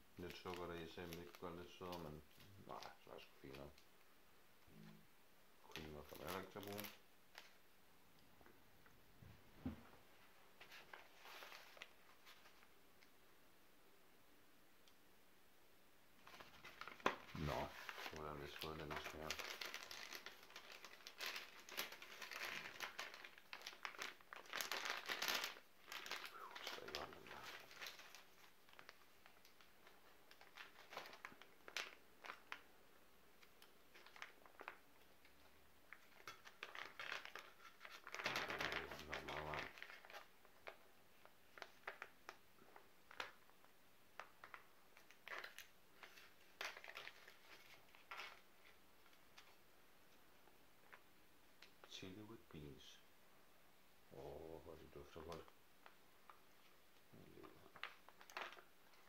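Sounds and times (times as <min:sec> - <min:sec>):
plastic bag crinkling: 0:00.2 - 0:03.8, 0:05.7 - 0:07.6, 0:10.6 - 0:12.7, 0:16.2 - 0:32.7, 0:33.4 - 0:49.6, 0:54.9 - 0:59.0.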